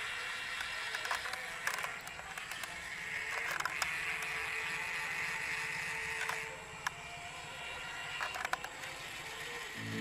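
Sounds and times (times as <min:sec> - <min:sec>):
small motor whine: 0:00.0 - 0:10.0.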